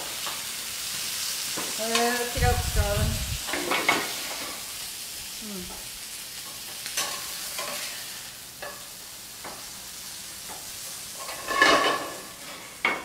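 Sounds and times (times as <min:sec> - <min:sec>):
food sizzling in a pan: 0:00.0 - 0:13.0
metal utensil scraping pan: 0:11.1 - 0:13.0.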